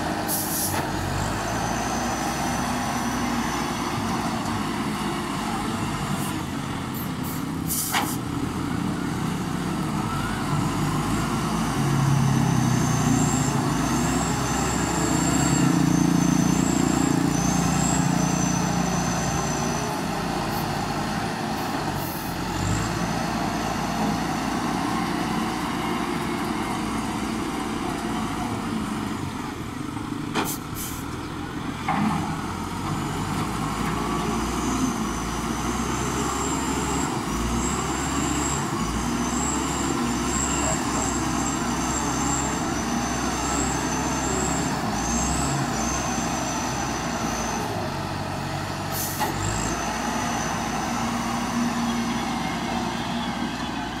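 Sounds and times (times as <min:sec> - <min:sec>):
wheel loader diesel engine: 0:00.0 - 0:54.0.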